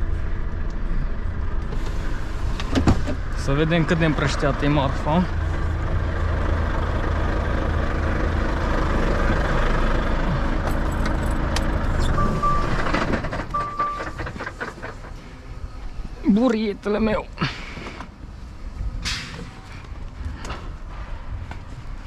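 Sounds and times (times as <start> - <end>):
diesel truck engine idling: 0.0 - 22.0
short high beeps: 12.0 - 12.8, 13.6 - 14.2.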